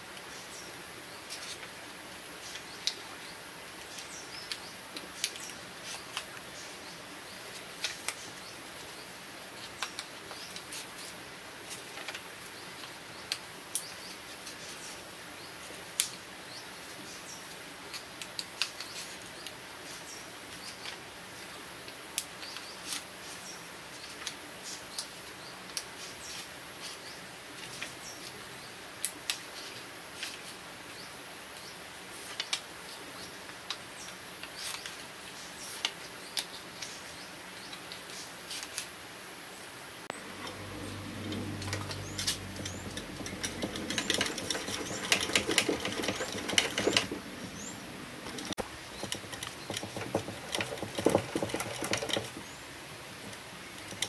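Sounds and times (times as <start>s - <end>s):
stiff paper crinkling and clicking: 3.8s - 6.5s, 7.5s - 8.3s, 41.6s - 52.5s
fast rattle of clicks: 41.3s - 52.5s.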